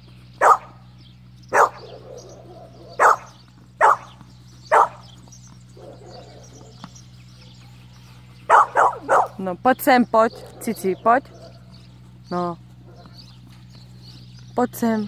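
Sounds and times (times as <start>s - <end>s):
dog barking: 0.4s - 0.8s, 1.5s - 5.1s, 5.8s - 6.9s, 8.5s - 9.4s, 10.2s - 11.7s, 12.8s - 13.2s.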